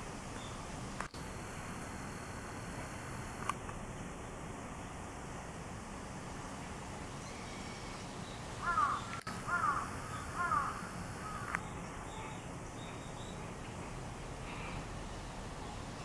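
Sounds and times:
crow cawing: 8.6s - 11.6s.

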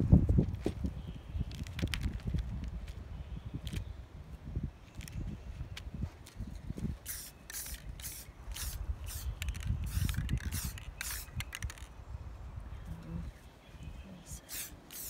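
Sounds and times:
spray paint can hissing bursts: 7.0s - 11.9s, 14.4s - 15.0s.

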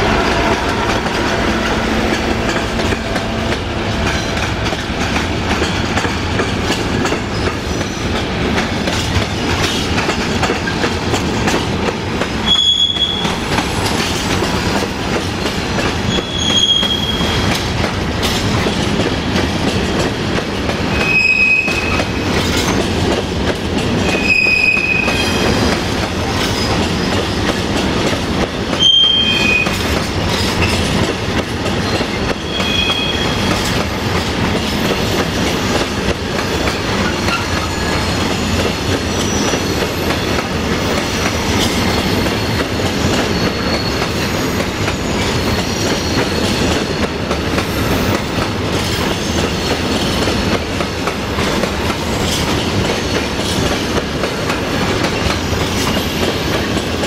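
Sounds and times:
train wheels rumbling on rails: 0.0s - 57.0s
high-pitched wheel squeals: 12.5s - 13.4s, 16.1s - 17.4s, 20.9s - 22.0s, 24.0s - 25.6s, 28.8s - 29.8s, 32.4s - 33.5s.

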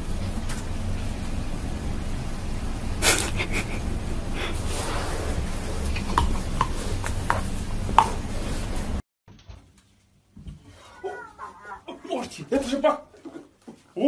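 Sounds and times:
steady hiss: 0.0s - 9.0s.

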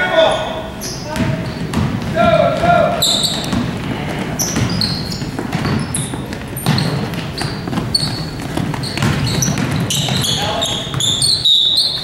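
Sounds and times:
murmur of voices: 0.0s - 5.1s
sneakers squeaking on floor: 0.0s - 12.0s
basketball bouncing: 1.1s - 12.0s.

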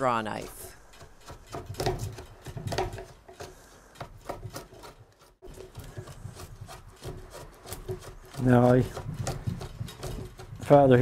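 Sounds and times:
draw knife scraping wood: 0.6s - 11.0s.

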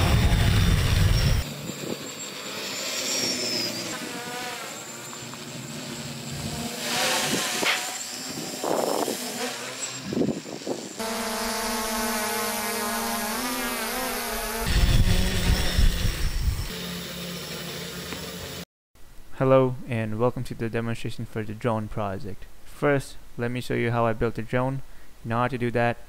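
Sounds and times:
drone propellers whirring: 0.0s - 18.6s.

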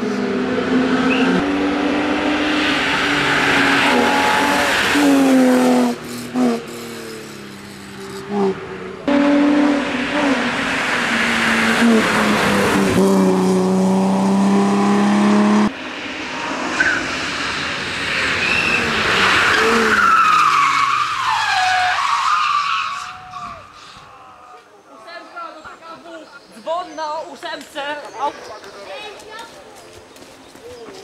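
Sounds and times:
race car engine at high revs: 0.0s - 21.5s
tyres squealing: 18.4s - 24.6s.

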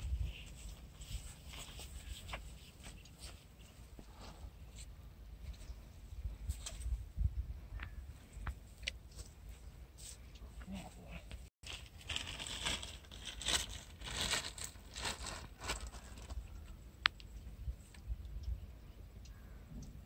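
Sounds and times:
rustling and crunching dry grass: 0.0s - 4.9s, 11.6s - 17.2s.

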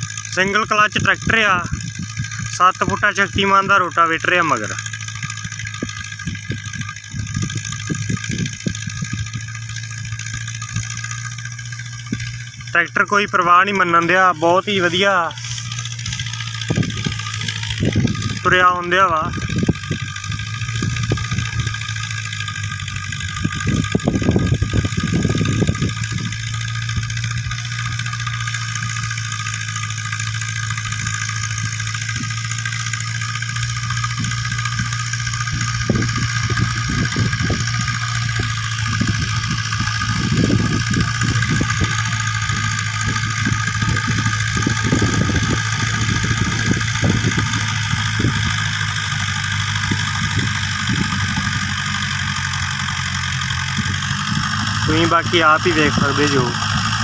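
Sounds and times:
tractor diesel engine droning: 0.0s - 57.0s.

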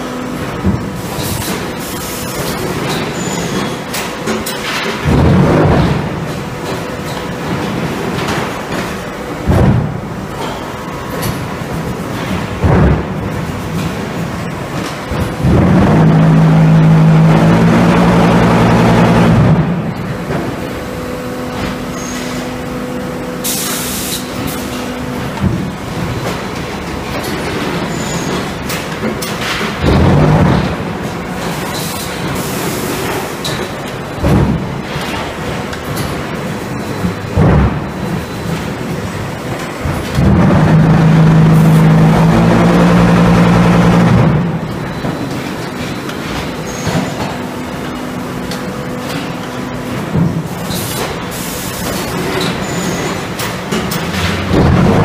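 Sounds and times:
machinery noise: 0.0s - 55.0s
loud steady low drone: 4.6s - 8.4s, 9.1s - 23.5s, 28.6s - 31.6s, 37.1s - 45.1s, 54.2s - 55.0s
mechanical clatter: 24.2s - 55.0s.

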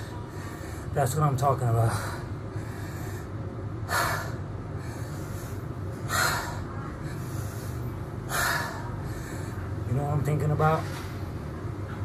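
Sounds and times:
man breathing hard: 0.0s - 1.0s, 1.8s - 9.8s
steady low hum: 0.0s - 12.0s.

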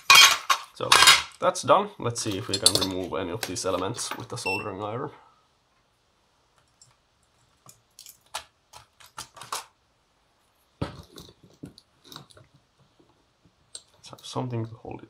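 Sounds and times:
tools clicking and knocking: 2.4s - 3.6s.

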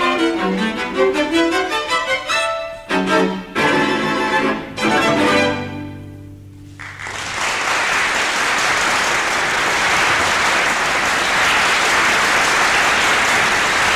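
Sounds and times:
audience applause: 6.7s - 13.9s.

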